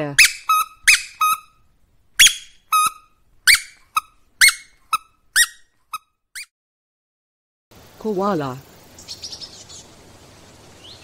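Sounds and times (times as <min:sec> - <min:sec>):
toy squeaking: 0:00.1 - 0:01.6, 0:02.2 - 0:06.5.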